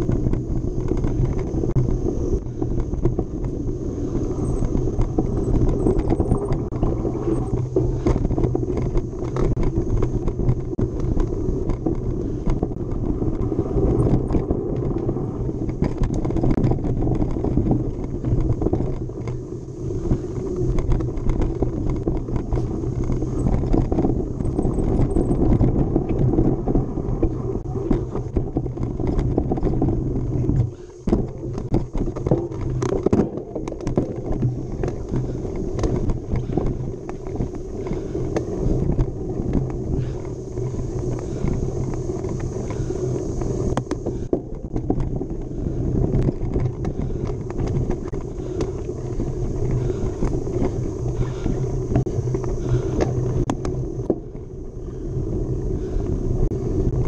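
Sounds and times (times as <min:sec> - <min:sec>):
bike rattling and knocking: 0:00.0 - 0:57.0
wind rumbling on microphone: 0:00.0 - 0:57.0.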